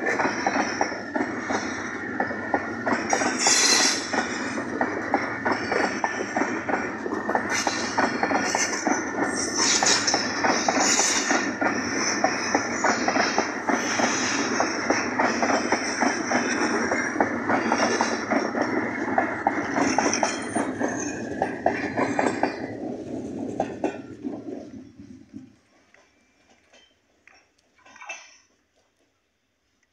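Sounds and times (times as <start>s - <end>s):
train wheels clickety-clack: 0.0s - 29.2s
high wheel squeal: 3.3s - 4.5s.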